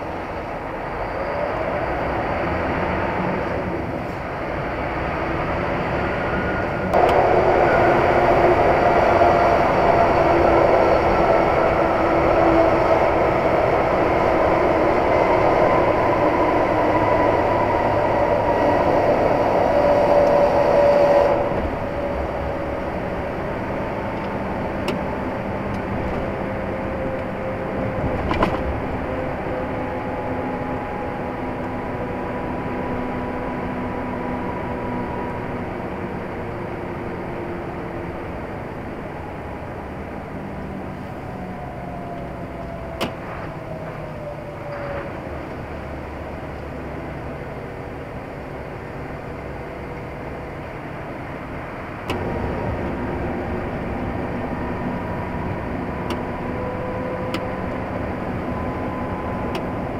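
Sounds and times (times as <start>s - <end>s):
vehicle road and engine noise: 0.0s - 59.9s.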